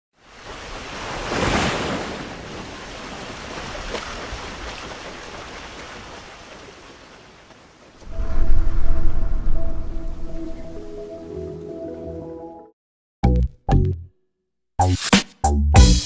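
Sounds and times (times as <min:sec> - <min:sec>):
rushing wind-like noise effect: 0:08.1 - 0:11.0.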